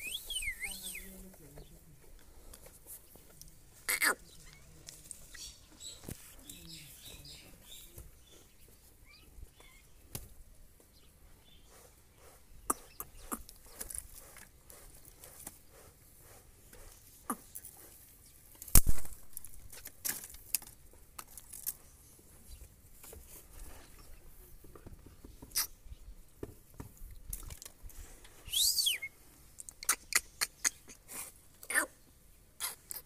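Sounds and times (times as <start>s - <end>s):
claws and beak tapping on perch: 12.7s - 14.5s.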